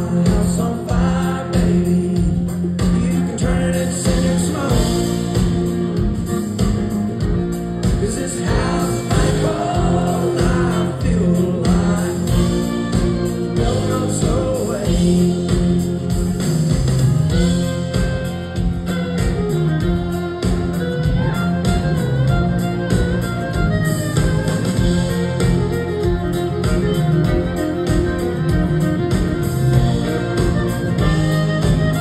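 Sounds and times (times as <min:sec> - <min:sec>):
man singing: 0:00.0 - 0:05.7, 0:07.9 - 0:16.5
drums: 0:00.0 - 0:32.0
live country band playing: 0:00.0 - 0:32.0
strummed acoustic guitar: 0:00.0 - 0:32.0.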